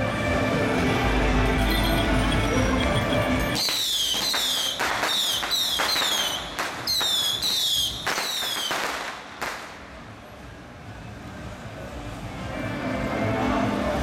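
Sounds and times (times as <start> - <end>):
whistling fireworks: 1.6 - 9.8
firework bangs: 3.6 - 10.0.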